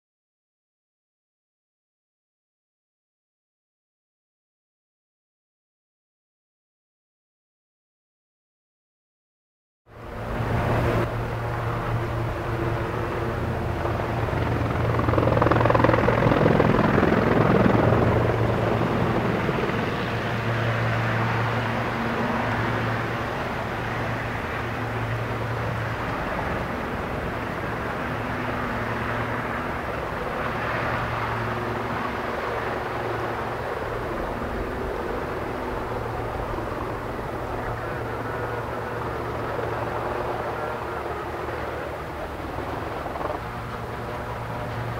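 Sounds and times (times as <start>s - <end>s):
helicopter hovering: 9.9s - 44.9s.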